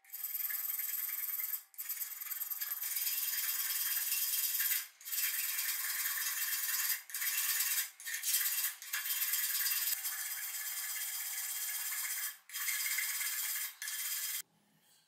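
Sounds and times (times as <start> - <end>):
file scraping across steel: 1.5 - 10.2.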